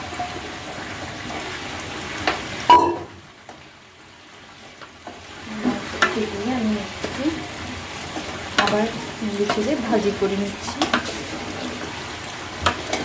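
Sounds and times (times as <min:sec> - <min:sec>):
rice sizzling in a pot: 0:00.0 - 0:13.0
spoon stirring and scraping: 0:08.0 - 0:11.5.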